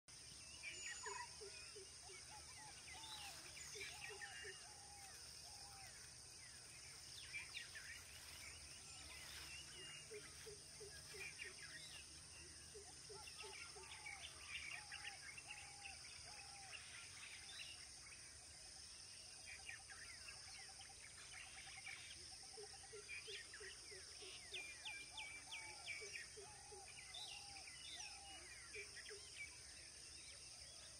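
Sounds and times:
birds chirping: 0.1s - 17.8s.

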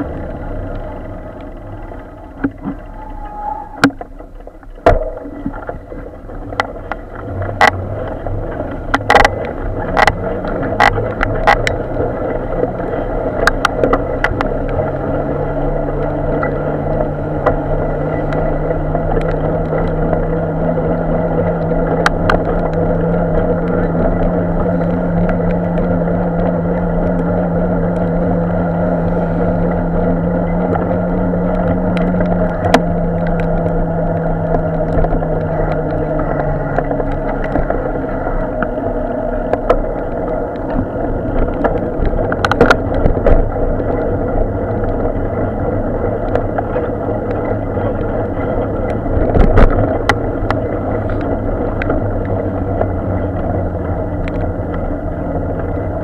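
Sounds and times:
low hum: 0.0s - 56.0s
road and traffic noise: 0.0s - 56.0s.

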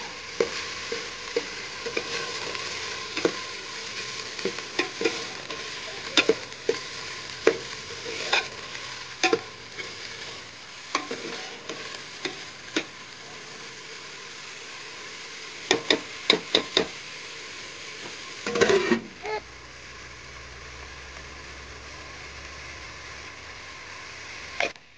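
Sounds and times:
vegetables sizzling in pot: 0.0s - 24.9s
ladle scraping metal pot: 7.4s - 8.6s, 9.2s - 12.4s, 18.5s - 19.1s.

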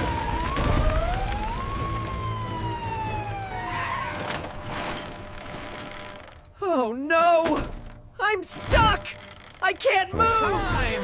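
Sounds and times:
fire truck siren wailing: 0.0s - 4.6s.

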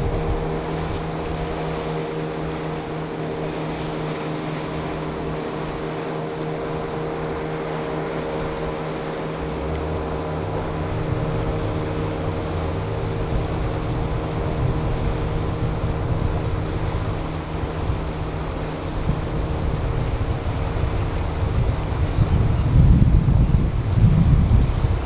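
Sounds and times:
distant engine drone: 0.0s - 25.0s
low rumble: 8.4s - 25.0s.

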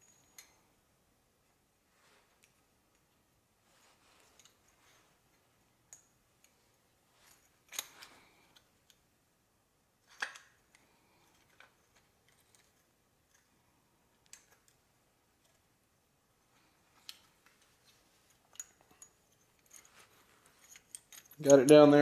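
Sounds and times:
metal piston clicking and clinking: 20.6s - 21.8s.

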